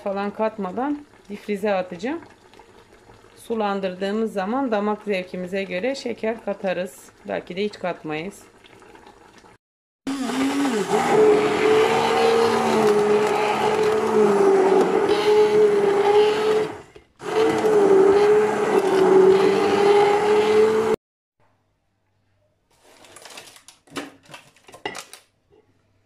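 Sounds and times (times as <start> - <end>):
electric blender running: 10.1 - 21.0.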